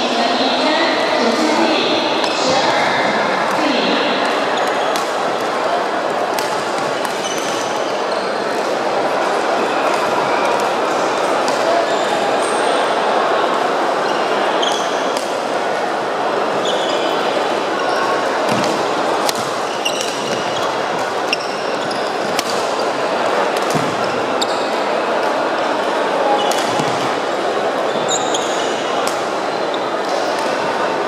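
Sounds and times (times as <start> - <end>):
hubbub of voices: 0.0 - 31.0
sneakers squeaking on wooden floor: 7.0 - 8.5, 19.4 - 22.8, 23.7 - 24.9, 27.9 - 28.9.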